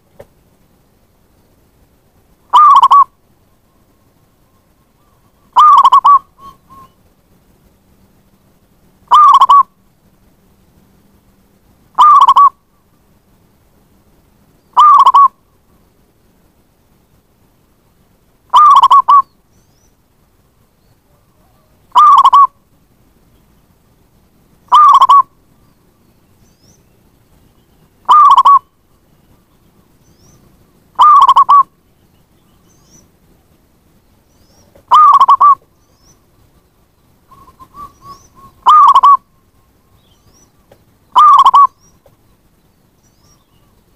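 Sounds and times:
dove cooing: 2.5 - 3.1, 5.0 - 7.0, 9.1 - 9.7, 12.0 - 12.6, 14.8 - 15.4, 18.5 - 19.3, 21.1 - 22.6, 24.7 - 25.3, 28.0 - 28.7, 31.0 - 31.7, 34.6 - 35.7, 37.3 - 39.3, 41.1 - 41.8.

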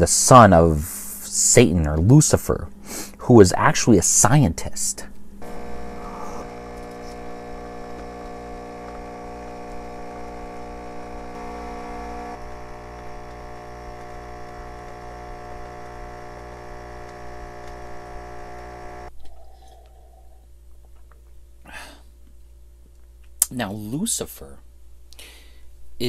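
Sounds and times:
coffee machine pump humming: 5.4 - 19.1.

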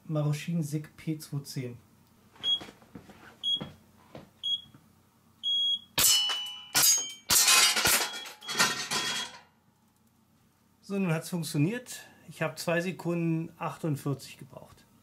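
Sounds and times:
shot timer beeps: 5.4 - 6.0
steel targets ringing and clattering: 6.0 - 9.5.

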